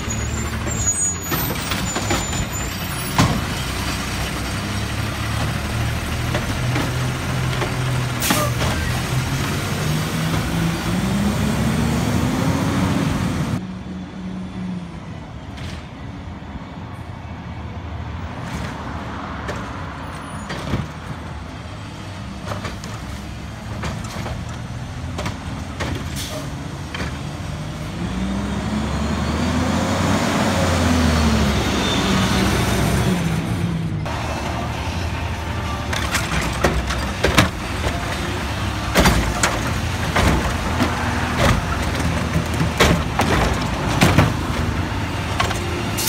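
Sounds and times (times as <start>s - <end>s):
garbage truck engine revving: 0.0s - 13.6s, 23.0s - 46.0s.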